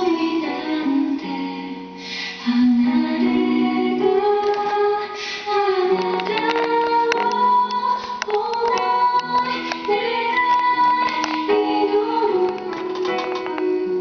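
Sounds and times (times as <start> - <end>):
plucked instrumental accompaniment: 5.6 - 14.0.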